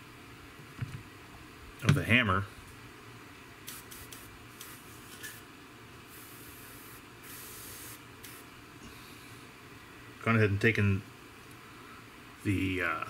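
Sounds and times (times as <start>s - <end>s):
airbrush spraying: 3.6s - 5.4s, 6.1s - 8.5s.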